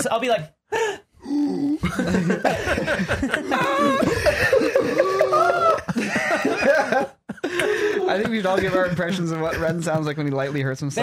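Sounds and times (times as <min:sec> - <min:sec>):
people laughing: 0:01.8 - 0:10.7.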